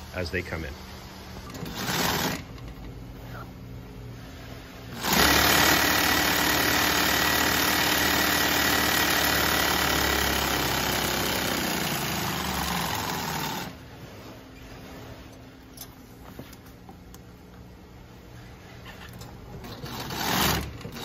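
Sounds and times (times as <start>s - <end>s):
sewing machine running: 1.5s - 2.5s, 4.9s - 13.8s, 19.8s - 21.0s.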